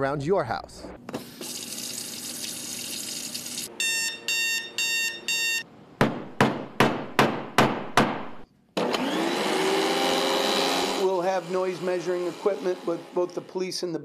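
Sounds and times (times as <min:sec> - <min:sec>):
electronic alarm beeps: 0:03.7 - 0:05.7
hammer striking nail into wood: 0:06.0 - 0:08.4
vacuum cleaner motor whine: 0:08.8 - 0:13.6.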